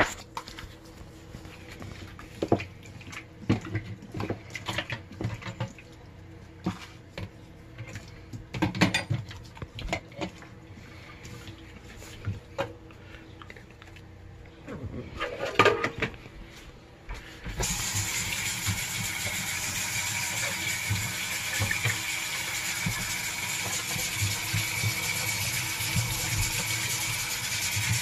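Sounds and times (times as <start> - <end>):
faint steady hum: 0.0 - 27.8.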